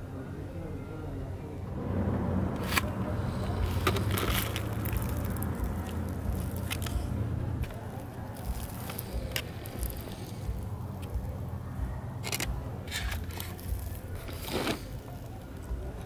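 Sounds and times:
steady low rumble: 0:01.3 - 0:16.0
quesadillas crackling being torn: 0:02.6 - 0:11.6, 0:12.2 - 0:16.0.

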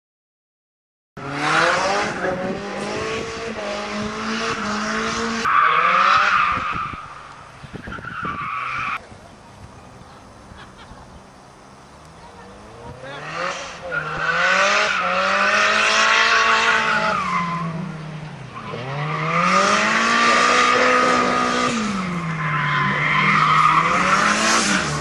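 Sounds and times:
car engine revving: 0:01.2 - 0:07.5, 0:11.8 - 0:25.0.

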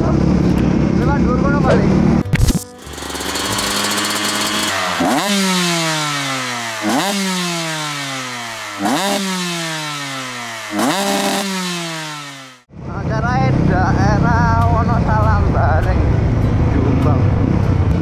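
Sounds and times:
dirt bike engine revving: 0:00.0 - 0:12.7.

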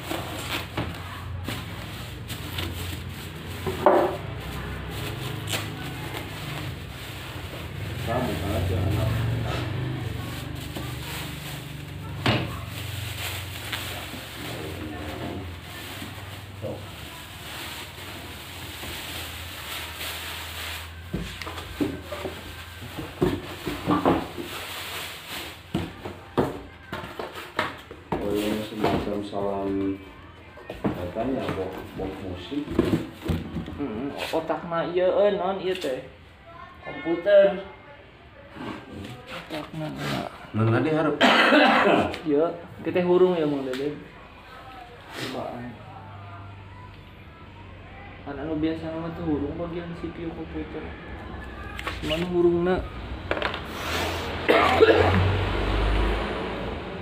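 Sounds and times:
styrofoam and plastic bag rustling: 0:00.0 - 0:27.6.

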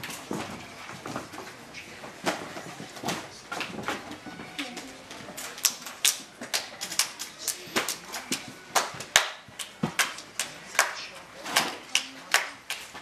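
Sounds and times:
hand clapping game: 0:05.6 - 0:13.0.

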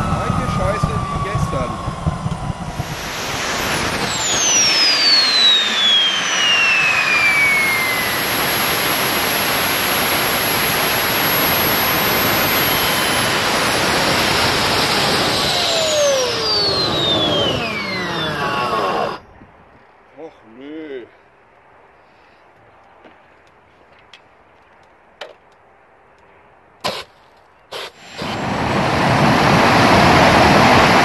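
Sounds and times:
jet engine roaring: 0:00.0 - 0:19.2, 0:27.7 - 0:31.0
high turbine whine: 0:00.0 - 0:19.7, 0:27.7 - 0:31.0.

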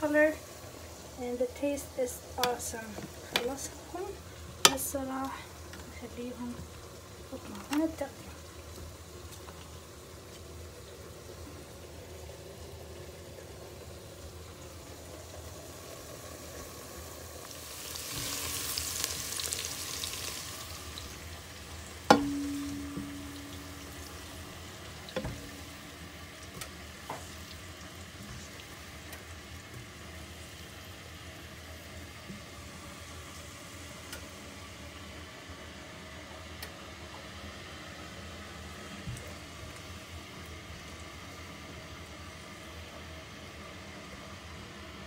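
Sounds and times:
sharp ringing knock: 0:22.1 - 0:23.7.

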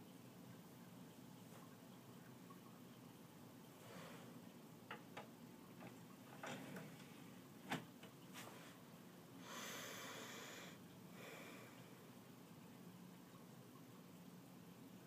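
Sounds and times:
soft rustle: 0:08.3 - 0:08.9.

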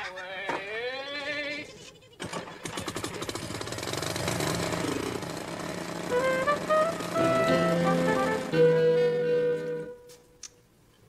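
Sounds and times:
small engine running: 0:02.2 - 0:09.9.

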